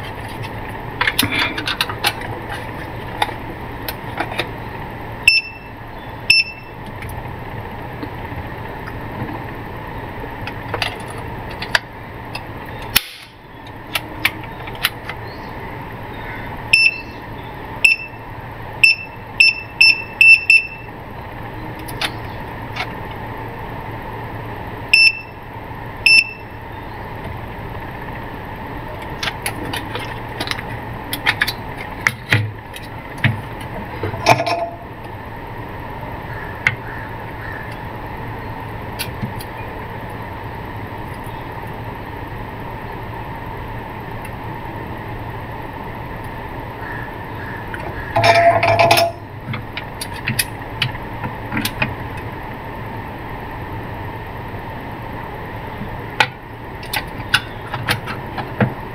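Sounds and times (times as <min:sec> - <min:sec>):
short high beeps: 0:05.3 - 0:05.7, 0:06.3 - 0:06.7, 0:16.7 - 0:17.2, 0:17.8 - 0:18.2, 0:25.0 - 0:25.3, 0:26.1 - 0:26.5.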